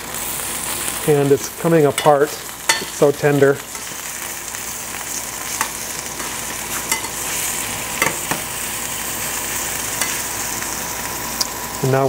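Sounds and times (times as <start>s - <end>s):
steak sizzling in frying pan: 0.0s - 12.0s
metal tongs clicking against pan: 6.9s - 7.2s, 8.0s - 8.4s, 10.0s - 10.2s.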